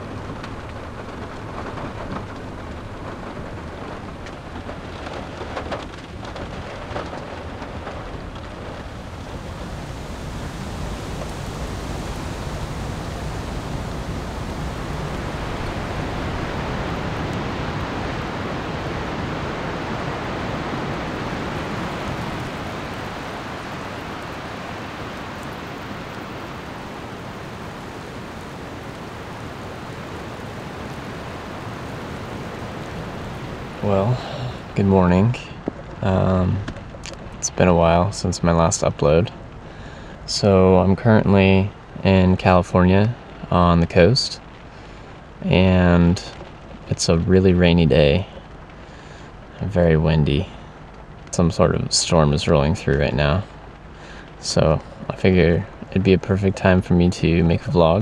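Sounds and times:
wind and heavy rain: 0.0s - 58.0s.

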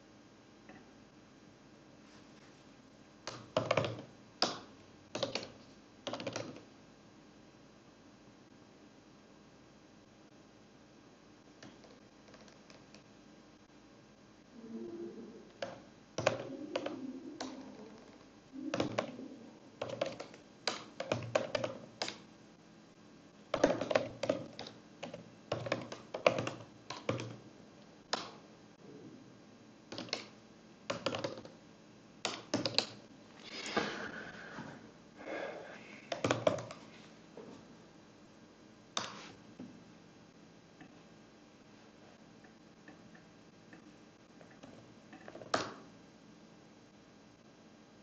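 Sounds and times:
computer keyboard typing: 3.3s - 6.7s, 11.6s - 13.0s, 15.5s - 19.2s, 19.8s - 22.2s, 23.5s - 27.4s, 29.9s - 31.6s, 32.2s - 33.0s, 36.1s - 36.8s.

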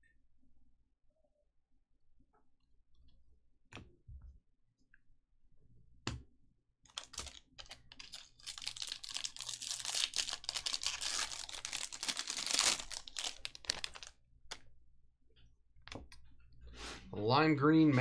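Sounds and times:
wrapper crinkling and tearing: 6.9s - 14.2s
cards rustling: 6.9s - 14.6s.

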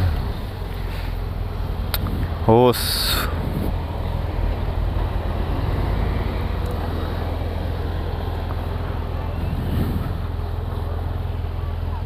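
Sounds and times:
motorcycle engine idling: 0.0s - 5.1s
street traffic: 0.0s - 12.0s.

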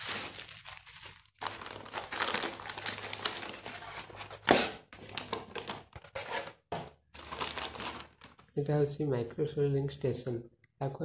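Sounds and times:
plastic bags crinkling: 0.0s - 8.6s.

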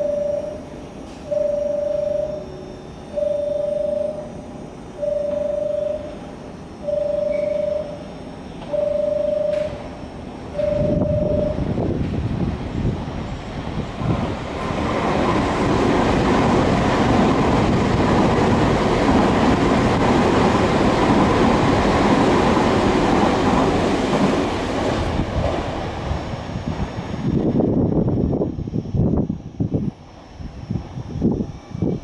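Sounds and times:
faint steady whine: 0.0s - 14.0s, 25.0s - 32.0s
train wheels rumbling on rails: 3.2s - 28.4s.

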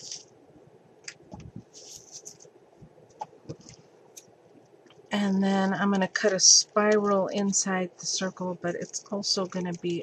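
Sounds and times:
paper rustling: 0.0s - 0.3s, 1.3s - 2.5s.

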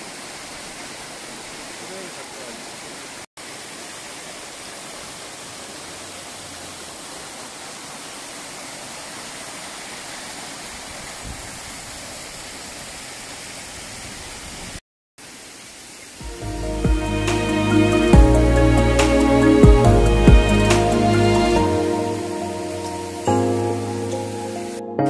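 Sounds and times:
stream splashing over rocks: 0.0s - 17.7s.

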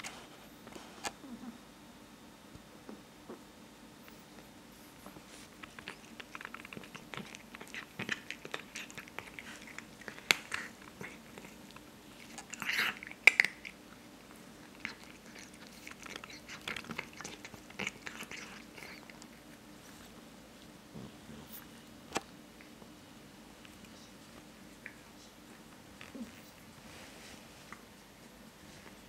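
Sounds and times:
cat crunching dry kibble: 5.5s - 19.6s.

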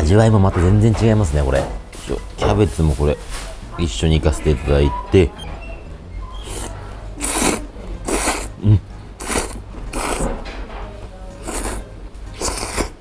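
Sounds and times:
person slurping noodles: 6.4s - 10.3s, 11.4s - 11.8s, 12.4s - 13.0s.

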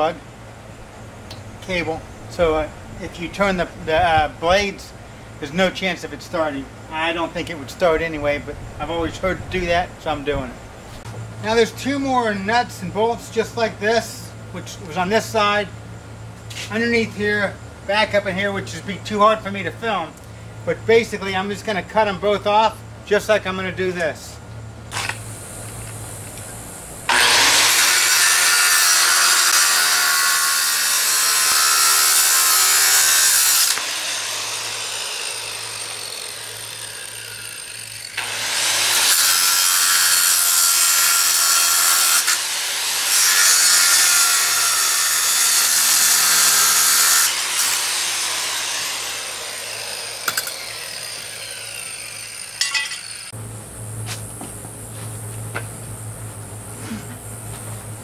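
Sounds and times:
angle grinder cutting steel: 24.9s - 25.2s, 27.1s - 53.4s.

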